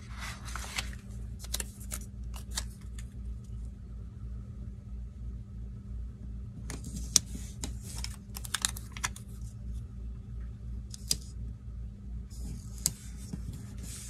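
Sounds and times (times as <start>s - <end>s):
sticker sheet rustling: 0.0s - 3.1s, 6.8s - 9.5s
low hum: 0.0s - 14.0s.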